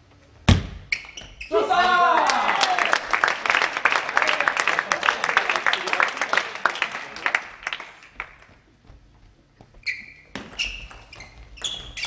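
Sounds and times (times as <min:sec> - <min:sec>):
shoes squeaking on floor: 0:00.5 - 0:01.7, 0:08.6 - 0:12.0
people clapping: 0:01.7 - 0:08.6.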